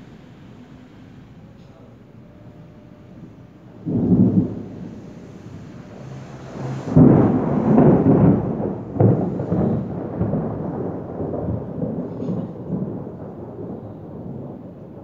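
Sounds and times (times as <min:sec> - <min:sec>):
low thunder rumble: 0:00.0 - 0:15.0
thunder clap: 0:03.0 - 0:15.0.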